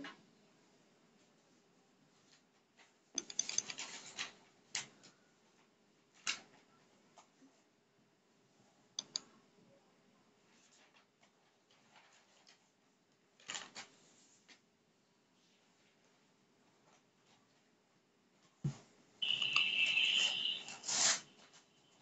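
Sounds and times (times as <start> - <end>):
faint clicks: 9.0 - 9.3
scratchy rustles: 20.2 - 21.8.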